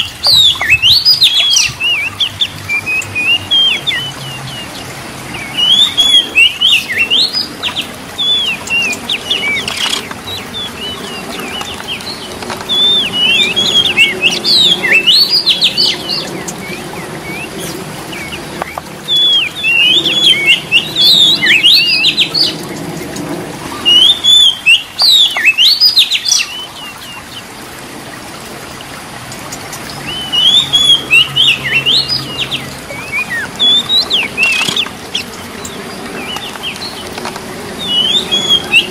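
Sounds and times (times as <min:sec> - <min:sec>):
bird singing warbling whistles: 0:05.4 - 0:07.4, 0:12.7 - 0:17.7, 0:19.1 - 0:22.6, 0:30.0 - 0:34.9, 0:37.8 - 0:38.9.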